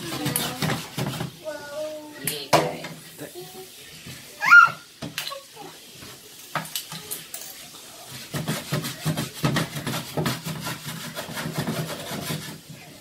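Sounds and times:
spatula scraping a frying pan: 0.0s - 1.6s, 6.8s - 13.0s.

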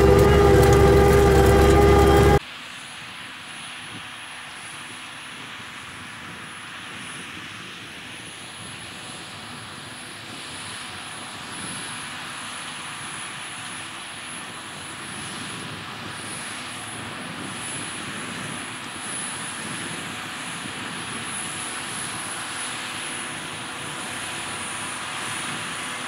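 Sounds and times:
tractor engine under load: 0.0s - 2.4s.

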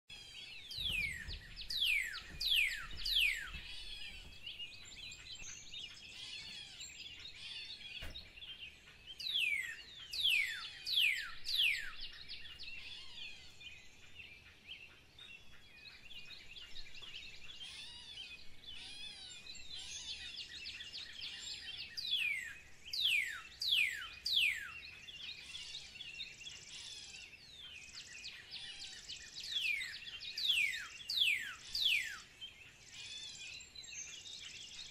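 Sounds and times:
small bird chirps: 0.1s - 34.9s.

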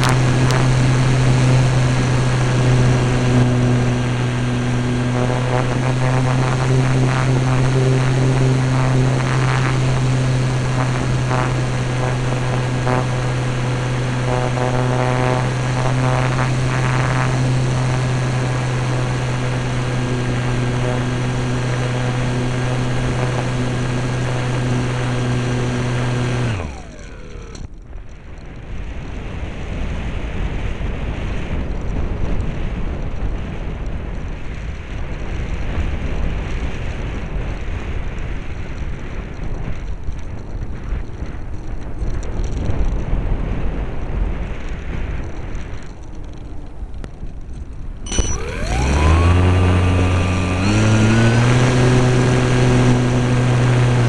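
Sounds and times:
model airplane motor droning: 0.0s - 27.9s, 44.6s - 54.0s.

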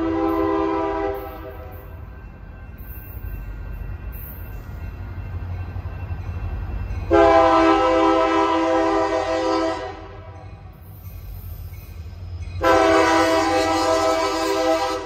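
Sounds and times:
locomotive air horn blast: 0.0s - 1.7s, 7.1s - 10.3s, 12.6s - 15.0s.

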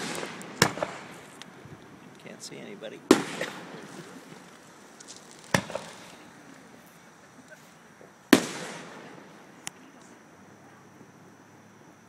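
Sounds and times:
distant fireworks bangs: 0.0s - 6.8s, 8.2s - 10.2s
small firework pop: 3.1s - 6.2s.

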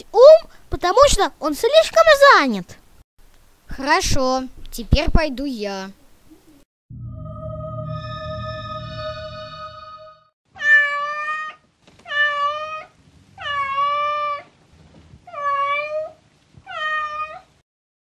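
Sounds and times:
electronic chord: 6.9s - 10.3s
cat meowing: 10.6s - 14.5s, 15.3s - 17.5s.

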